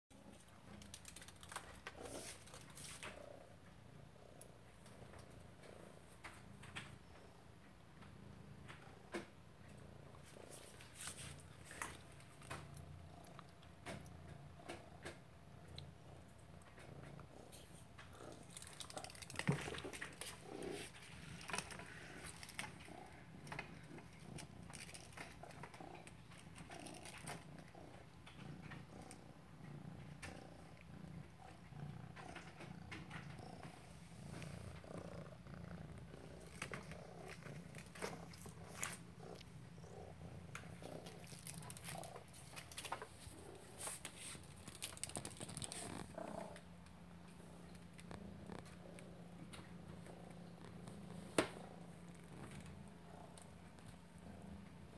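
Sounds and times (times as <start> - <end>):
cat purring: 0.1 - 54.9.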